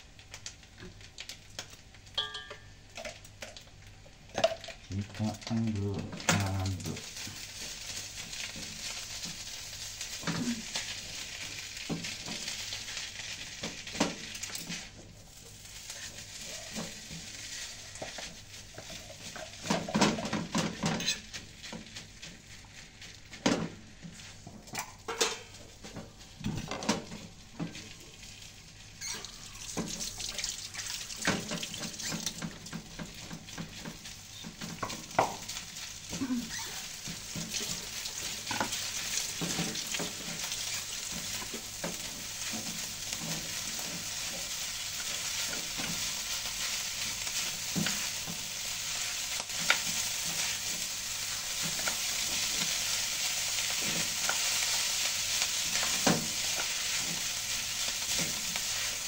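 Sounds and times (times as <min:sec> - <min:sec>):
rice sizzling in a pan: 0:00.0 - 0:59.0
spatula scraping and knocking pan: 0:37.0 - 0:59.0.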